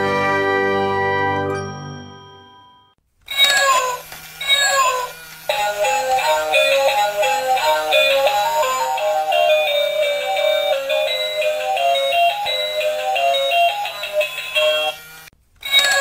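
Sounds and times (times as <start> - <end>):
high-pitched electronic voice: 3.3 - 10.8
bleepy electronic melody: 5.6 - 15.0.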